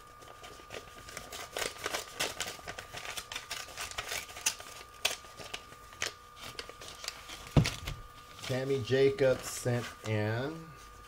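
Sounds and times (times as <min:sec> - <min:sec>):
envelope being opened: 0:00.0 - 0:10.1
paper rustling and crinkling: 0:00.0 - 0:11.0
sharp paper snaps: 0:01.0 - 0:08.0.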